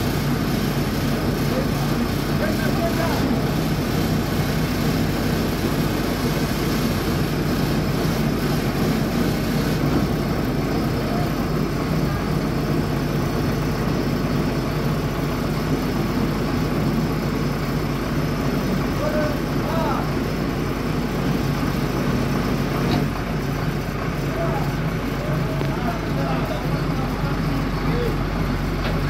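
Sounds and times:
engine humming low: 0.0s - 29.0s.

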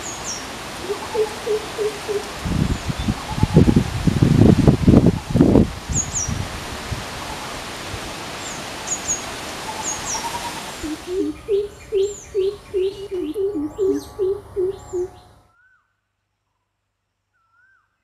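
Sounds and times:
small birds chirping: 0.0s - 3.7s, 8.4s - 15.4s
rustling hiss: 0.0s - 15.4s
deep resonant bird hooting: 0.8s - 2.3s, 10.8s - 15.8s.

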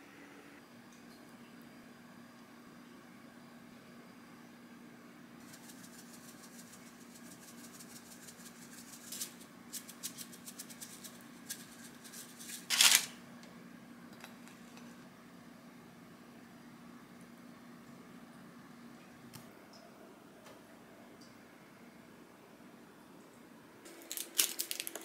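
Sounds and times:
faint steady hum: 0.0s - 25.0s
spice shaker ticks and rattles: 5.4s - 13.1s, 23.9s - 25.0s.

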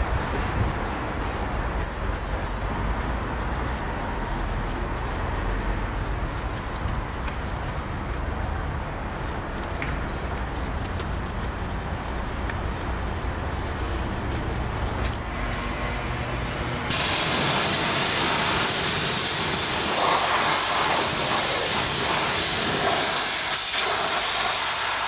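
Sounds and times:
steady rumbling background noise: 0.0s - 19.1s
brush scrubbing wet wheel: 16.9s - 25.0s.

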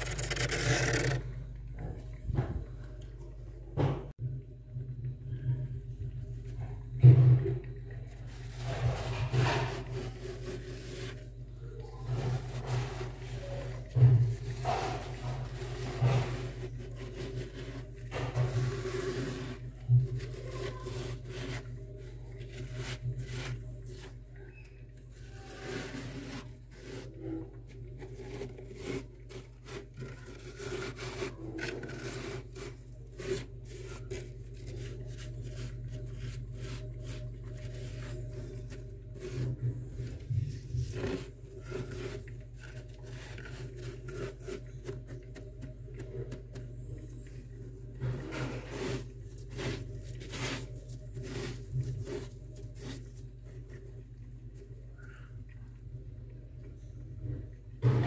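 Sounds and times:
hand scraping crunching frost: 0.0s - 1.3s, 8.3s - 24.2s, 25.1s - 27.4s, 28.0s - 45.0s, 48.0s - 53.8s.

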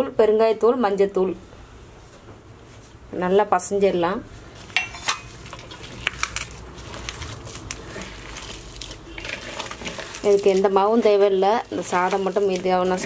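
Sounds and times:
hands squishing dough: 5.4s - 13.0s.

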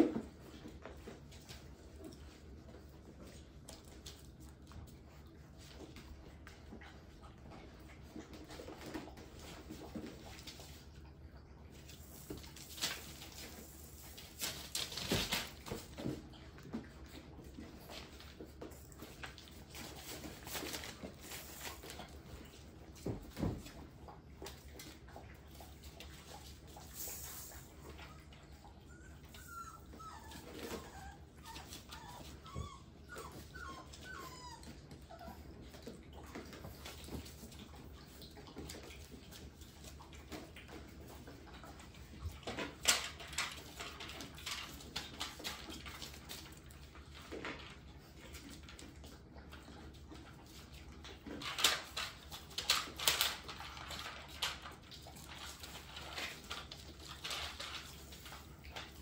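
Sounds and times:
puppies whimpering: 28.0s - 35.6s.

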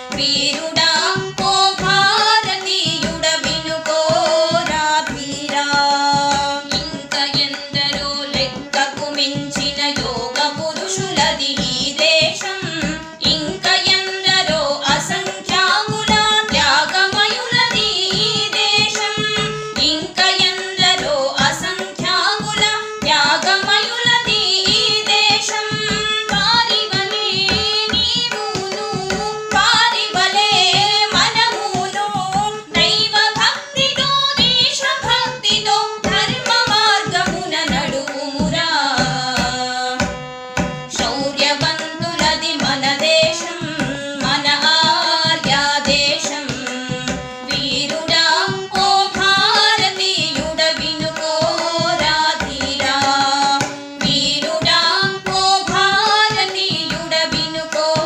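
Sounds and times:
harmonium: 0.0s - 58.0s
tabla playing: 0.0s - 58.0s
women singing together: 0.0s - 58.0s.

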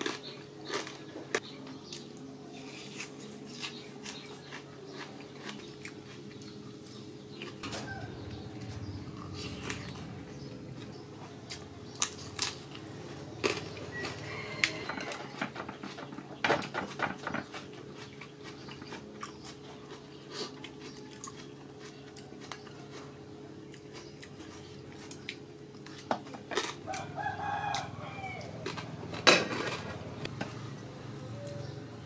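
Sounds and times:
chicken calling: 7.4s - 11.3s, 12.9s - 16.3s, 26.8s - 29.0s.

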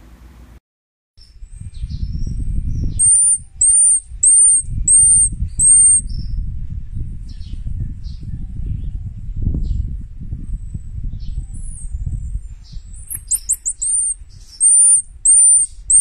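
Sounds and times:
faint high chirps: 1.2s - 6.2s, 12.6s - 16.0s
marmoset whistling calls: 1.8s - 6.3s, 12.8s - 16.0s.

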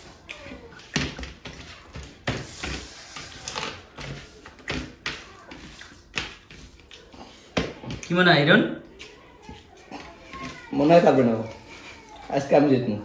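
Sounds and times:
rice being squeezed and scooped: 0.0s - 6.8s.

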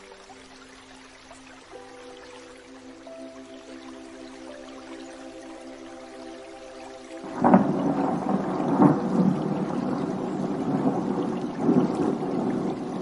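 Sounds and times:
thunder rumbling: 7.2s - 13.0s.

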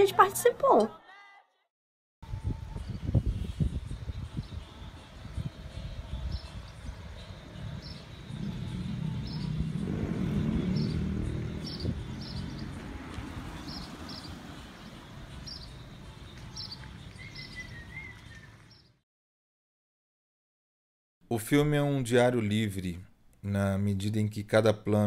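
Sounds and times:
bird chirping: 2.8s - 19.0s
car driving past: 7.1s - 16.7s.

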